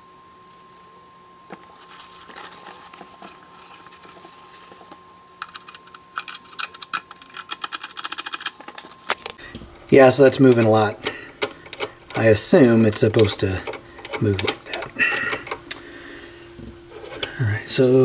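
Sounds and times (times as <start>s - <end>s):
handling and rustling: 0.1s - 11.0s
turntable tonearm levers clicking: 10.3s - 15.6s.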